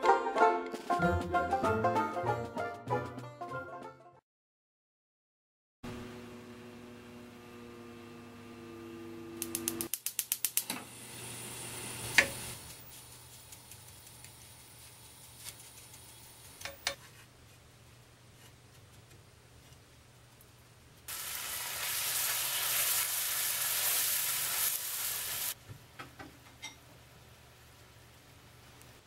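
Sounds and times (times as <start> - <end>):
microwave oven humming: 5.9 - 9.9, 10.7 - 12.8.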